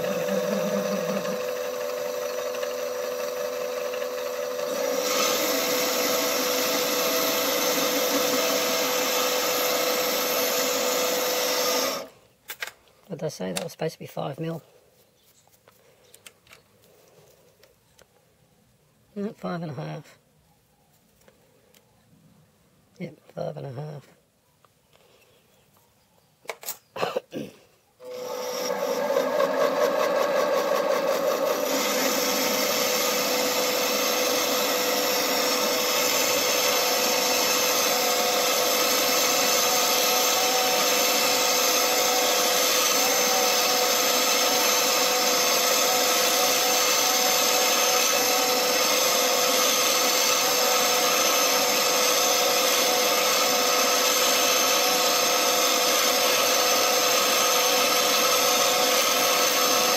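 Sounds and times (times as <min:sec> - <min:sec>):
metal lathe running: 0:00.0 - 0:12.1, 0:28.0 - 0:59.9.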